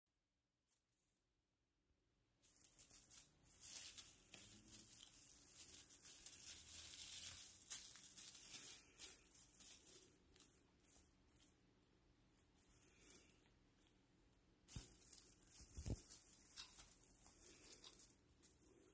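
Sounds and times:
tree branches rustling and crackling: 2.4s - 11.5s, 14.7s - 18.9s.

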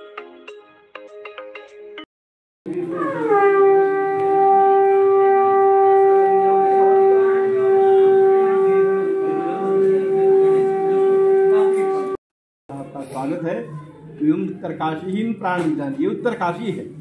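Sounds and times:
conch shell blown in long note: 2.7s - 12.2s.

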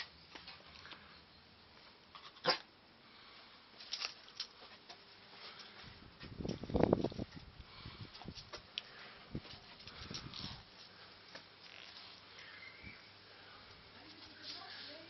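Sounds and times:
faint clicks and rustles: 3.2s - 15.0s.

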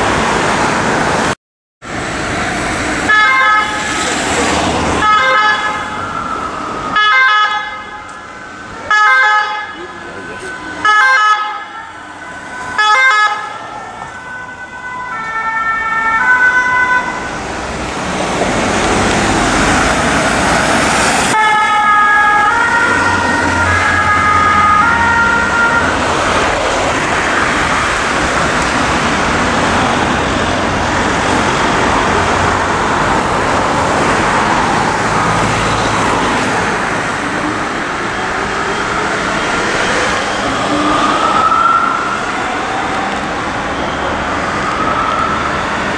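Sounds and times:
road traffic noise: 0.0s - 45.9s
two-tone sirens: 2.0s - 45.9s.

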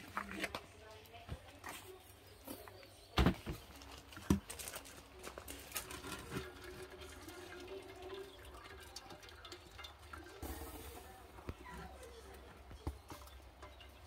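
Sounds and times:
water dripping: 5.3s - 14.0s.

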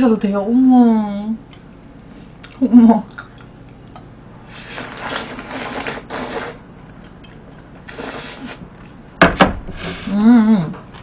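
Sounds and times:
noodles slurped from a bowl: 4.5s - 6.7s, 7.9s - 8.6s.

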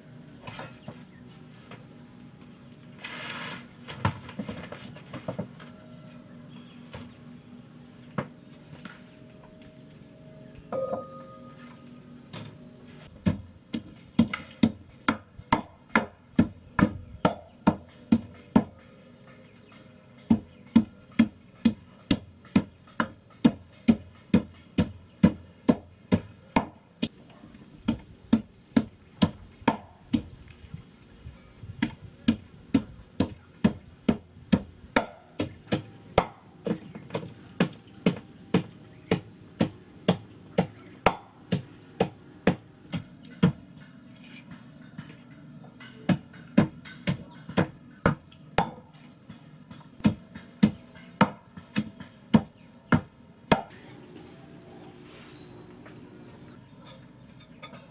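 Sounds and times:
pestle pounding in metal mortar: 13.2s - 26.8s, 27.8s - 30.3s, 31.8s - 53.7s.

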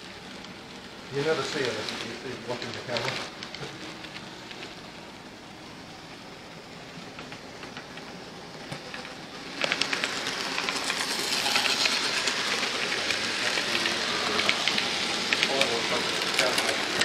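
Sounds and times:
model train wheels clicking on rails: 0.0s - 17.0s.

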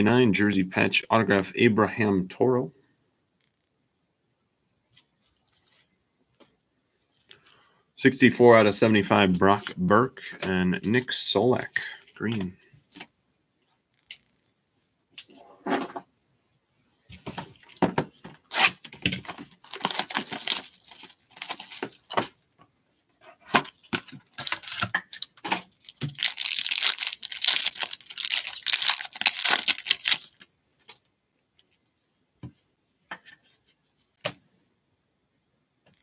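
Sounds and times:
foil wrapper tearing and crinkling: 18.5s - 22.2s, 24.3s - 30.4s.

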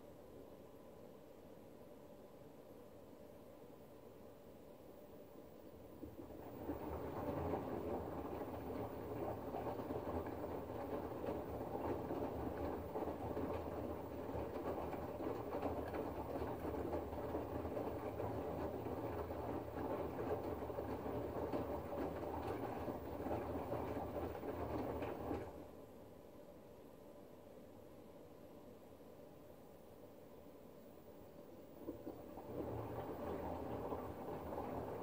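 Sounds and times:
washing machine drum tumbling: 6.0s - 25.6s, 31.8s - 35.0s.

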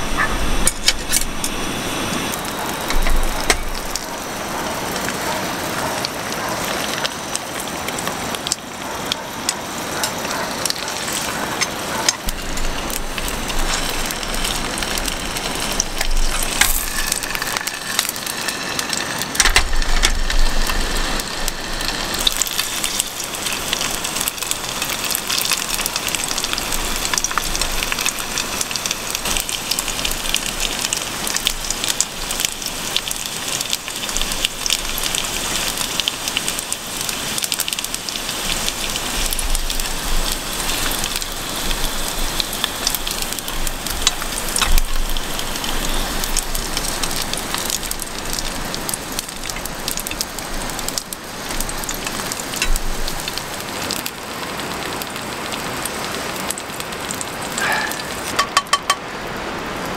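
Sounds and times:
dumplings sizzling in oil: 0.0s - 59.1s
chopsticks tapping: 58.4s - 59.0s.

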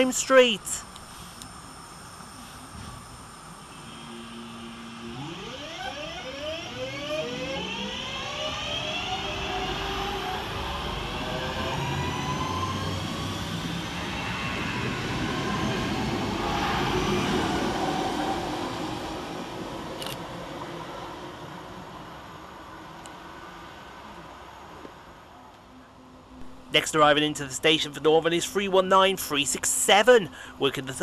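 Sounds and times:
electric train motor whine: 0.9s - 25.1s
train wheels rumbling on rails: 7.0s - 23.4s.

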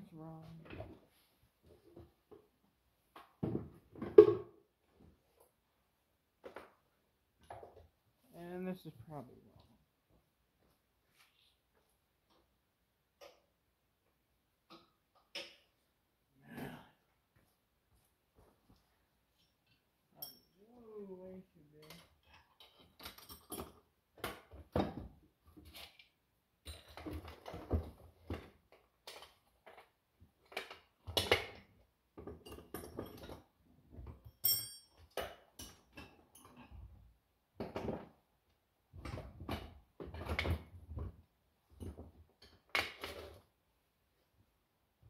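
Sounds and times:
metal tools clinking on metal: 20.2s - 20.6s, 34.3s - 36.6s.

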